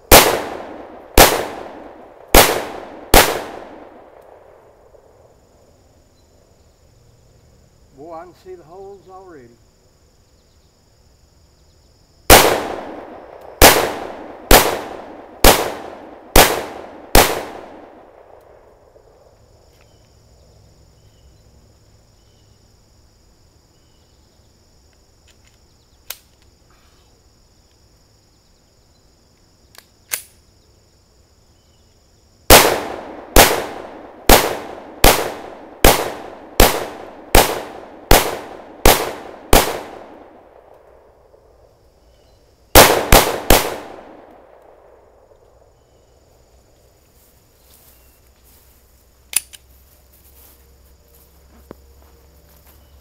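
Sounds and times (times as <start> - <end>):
pistol shots with echo: 0.1 - 4.5, 12.3 - 18.5, 32.5 - 40.5, 42.8 - 44.6.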